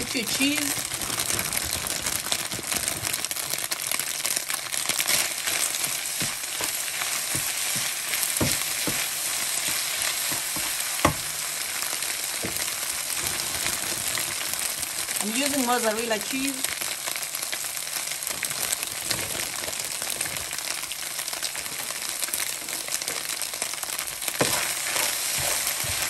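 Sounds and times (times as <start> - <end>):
noodles sizzling in a frying pan: 0.0 - 26.0
spoon scraping a pan: 24.4 - 26.0.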